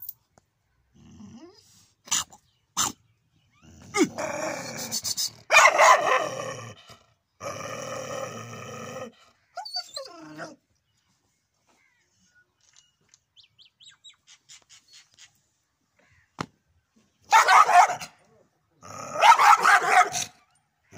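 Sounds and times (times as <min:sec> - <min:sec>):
dog barking: 0:05.5 - 0:06.3, 0:17.3 - 0:18.2, 0:19.2 - 0:20.3.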